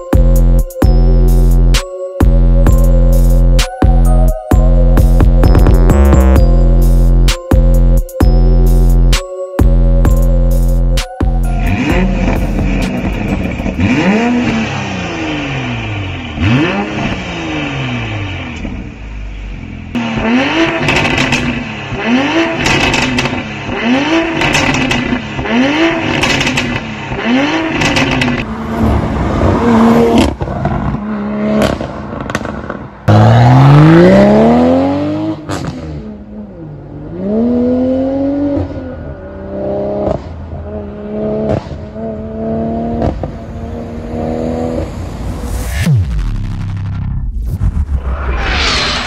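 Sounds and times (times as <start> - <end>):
car engine revving: 10.2 - 49.0
car accelerating hard: 11.6 - 46.0.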